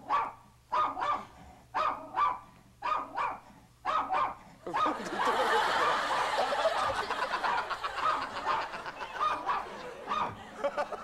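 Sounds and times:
small dogs yapping and barking: 0.0s - 5.0s, 7.5s - 10.4s.

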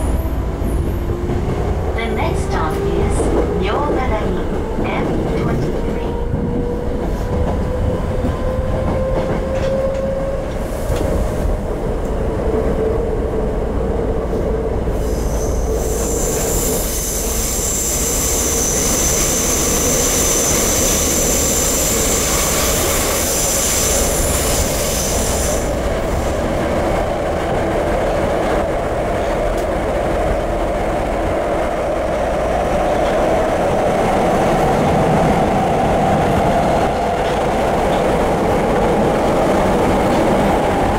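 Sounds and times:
wheels rumbling on rail: 0.0s - 40.9s.

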